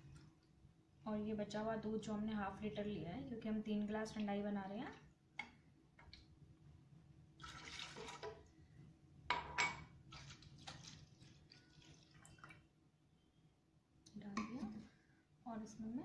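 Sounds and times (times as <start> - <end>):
milk pouring into a jar: 7.4 - 8.4, 10.0 - 12.7.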